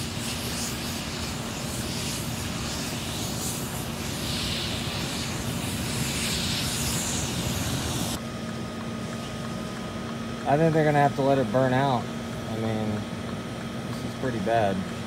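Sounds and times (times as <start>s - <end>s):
fire hissing: 0.0s - 8.2s
hose spraying water: 0.0s - 8.2s
fire engines running: 0.0s - 15.0s.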